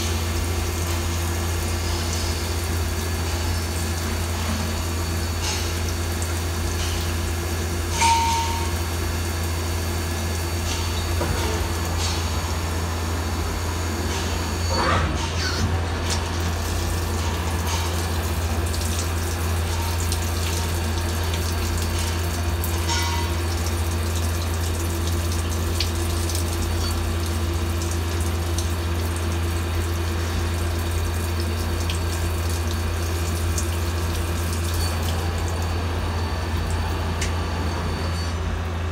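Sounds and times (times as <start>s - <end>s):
coolant splashing: 15.9s - 35.8s.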